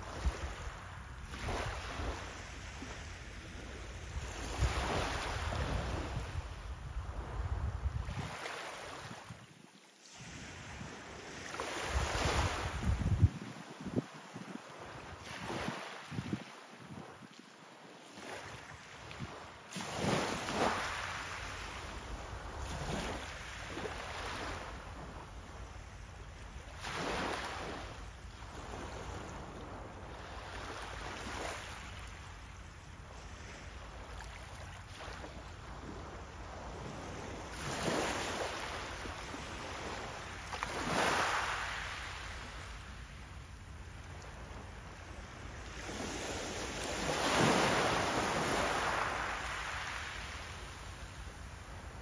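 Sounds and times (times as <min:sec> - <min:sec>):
waves washing on pebble beach: 0:45.8 - 0:51.2.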